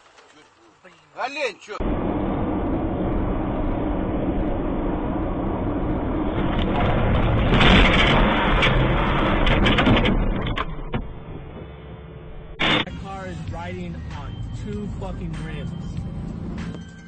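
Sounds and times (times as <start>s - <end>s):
car road and engine noise: 0.0s - 17.0s
rattles and knocks in car: 6.4s - 11.3s.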